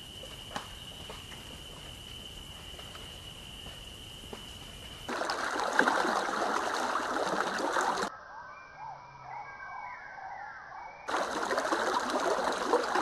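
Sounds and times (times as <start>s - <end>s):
trickling water: 5.0s - 8.1s, 11.1s - 13.0s.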